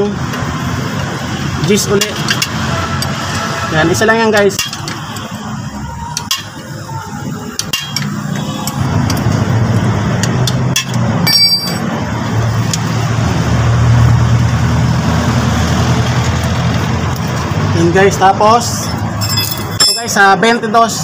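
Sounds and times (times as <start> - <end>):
metallic clink: 10.8 - 11.8, 18.8 - 20.2.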